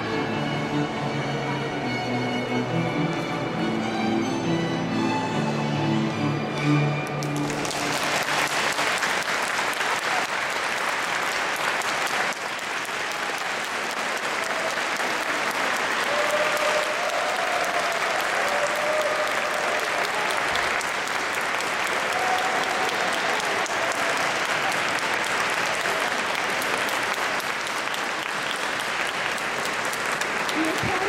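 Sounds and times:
audience applause: 0:07.1 - 0:31.0.

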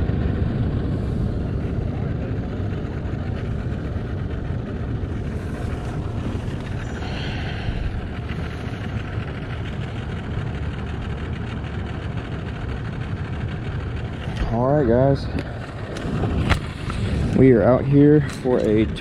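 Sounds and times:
outboard boat motors idling: 0:00.0 - 0:19.0.

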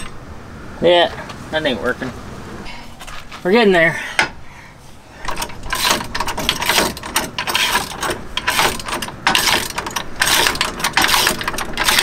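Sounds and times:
ratchet wrench clicking: 0:05.3 - 0:12.0.

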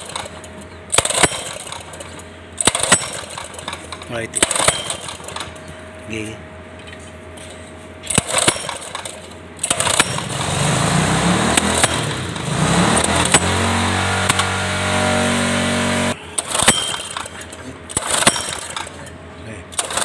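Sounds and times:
gasoline engine running: 0:00.0 - 0:20.0
pull-start cord pull: 0:08.1 - 0:10.5, 0:11.5 - 0:13.6, 0:16.4 - 0:19.0, 0:19.7 - 0:20.0.

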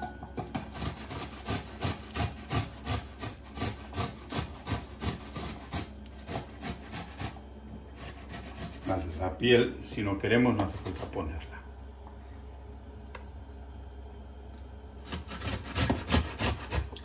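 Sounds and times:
tomato rasping on grater: 0:00.7 - 0:09.2, 0:15.1 - 0:17.0.

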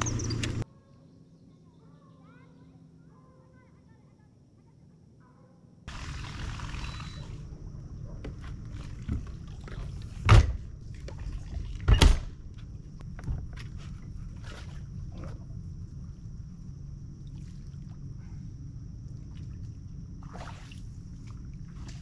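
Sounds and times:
steady low rumble: 0:07.4 - 0:21.9
loud thunks: 0:10.2 - 0:10.7.

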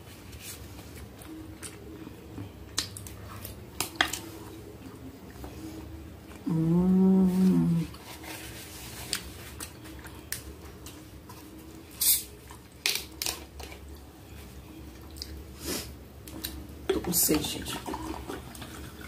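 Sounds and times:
person humming: 0:06.4 - 0:07.9
bottle cap opening with gas hiss: 0:12.0 - 0:12.3.

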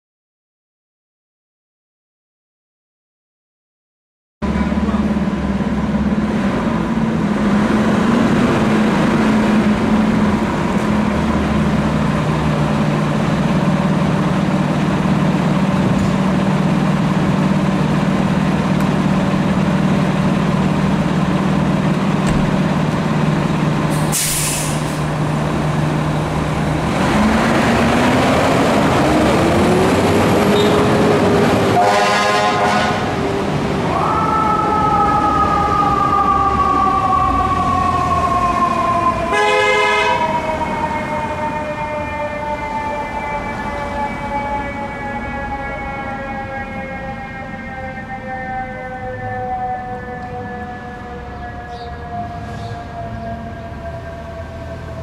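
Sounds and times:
fire engine diesel running: 0:04.4 - 0:55.0
air brake hiss: 0:23.9 - 0:25.1
siren wailing: 0:25.0 - 0:55.0
higher siren tone: 0:28.5 - 0:55.0.

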